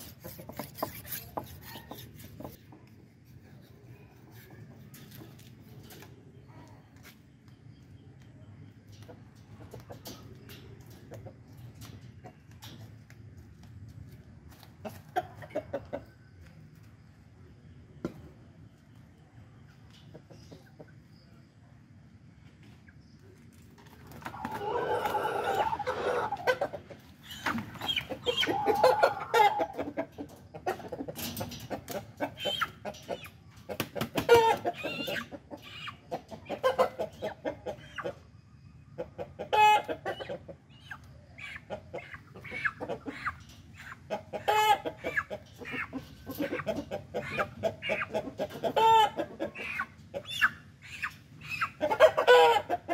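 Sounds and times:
chicken squawking: 0.0s - 2.6s, 24.2s - 31.0s, 32.2s - 38.2s, 39.3s - 52.9s
chicken clucking: 0.0s - 52.9s.

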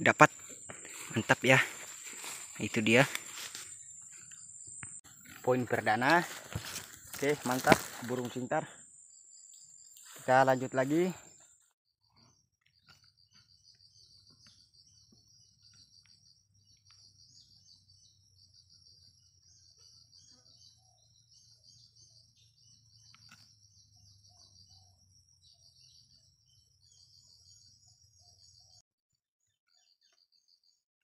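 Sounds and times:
insects chirring: 0.0s - 11.6s.

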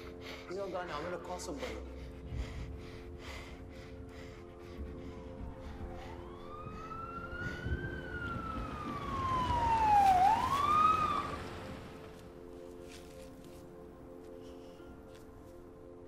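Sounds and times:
police siren wailing: 4.8s - 12.2s.

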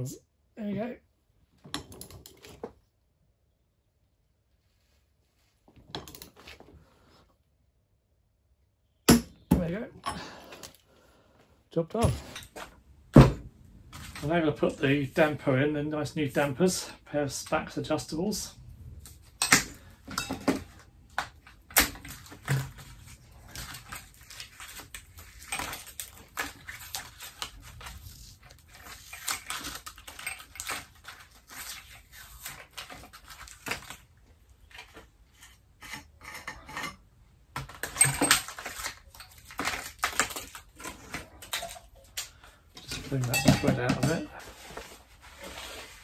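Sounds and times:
metal tools clinking on workbench: 42.8s - 44.3s.

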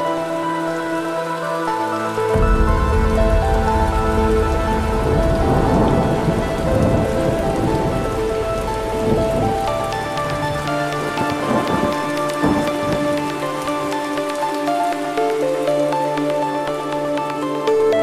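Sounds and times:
ambient synthesizer music: 0.0s - 18.0s
rain: 0.0s - 18.0s
rolling thunder: 2.3s - 13.3s.

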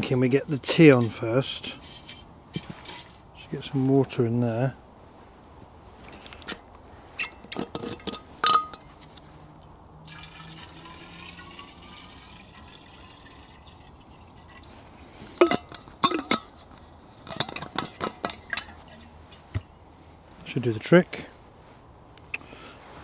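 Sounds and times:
water pouring into kettle: 10.1s - 14.7s.

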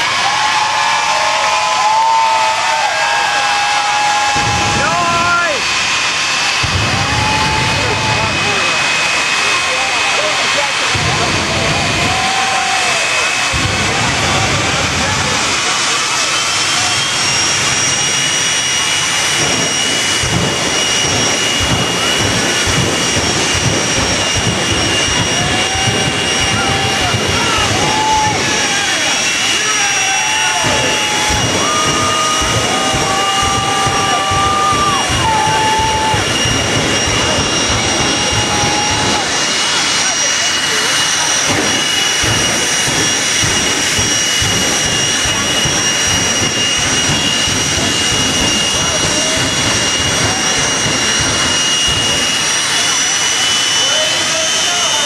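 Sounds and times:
jet engine roaring with whine: 0.0s - 55.0s
heavy low rumble: 4.1s - 54.6s.

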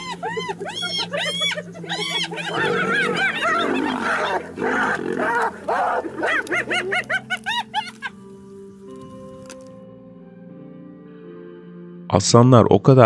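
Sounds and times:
short rising-and-falling animal calls: 0.0s - 7.9s
animals yelping and snarling: 0.0s - 8.2s
background music: 0.0s - 13.0s.

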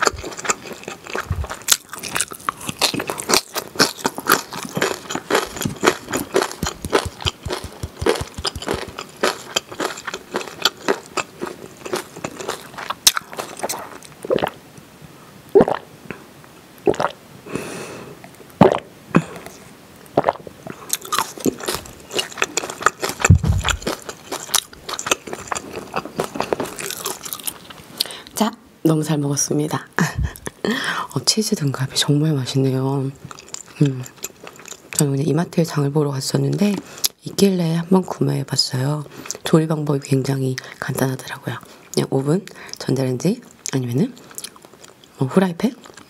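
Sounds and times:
crunchy food chewing: 0.0s - 14.6s, 20.2s - 28.1s, 33.2s - 35.1s, 43.4s - 45.2s, 45.8s - 46.0s
low thump: 23.3s - 23.8s.

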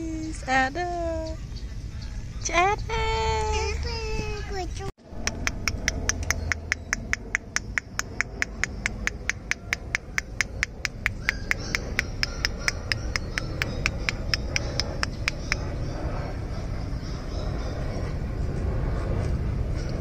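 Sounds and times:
low rumble: 0.0s - 20.0s
rapid sharp clicks: 5.2s - 15.2s.

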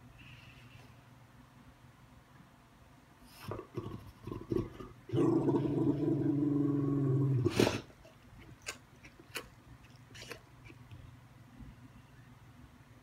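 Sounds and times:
dog grunting and growling: 3.4s - 8.0s.

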